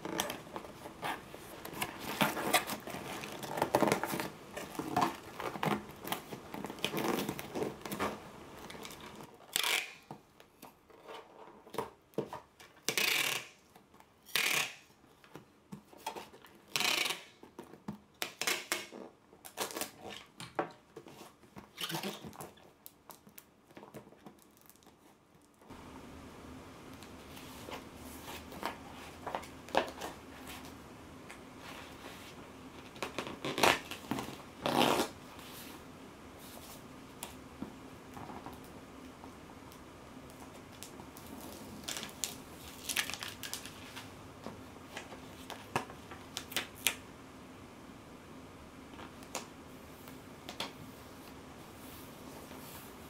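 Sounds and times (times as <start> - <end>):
paper and cardboard rustling: 0.0 - 9.3
packing tape ripping: 8.7 - 10.1, 12.9 - 13.6, 14.2 - 14.9, 16.7 - 17.4, 18.2 - 20.2, 33.0 - 35.2, 40.8 - 43.8.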